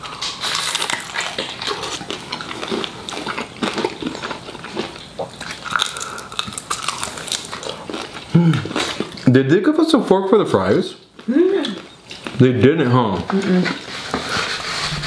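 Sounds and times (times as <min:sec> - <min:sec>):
man chewing with mouth clicks: 0:00.0 - 0:09.3, 0:11.0 - 0:12.4.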